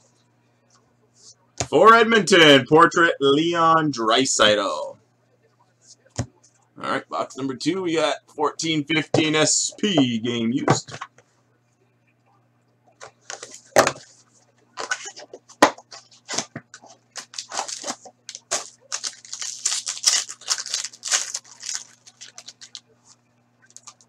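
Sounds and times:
foil pack tearing and crinkling: 0:17.2 - 0:22.8, 0:23.7 - 0:24.0.

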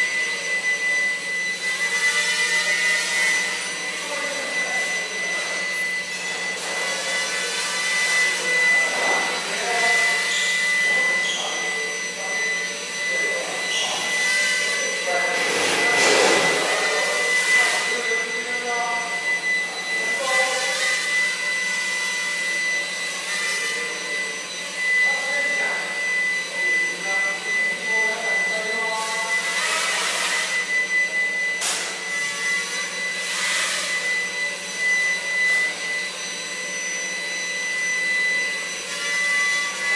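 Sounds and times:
drone motors whining: 0:06.1 - 0:27.2.

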